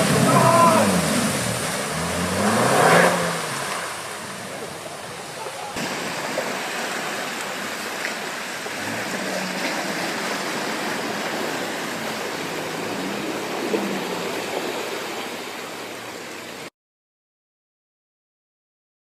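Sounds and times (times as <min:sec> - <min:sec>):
low engine note: 0:00.0 - 0:16.4
muddy water rushing and splashing: 0:00.0 - 0:16.7.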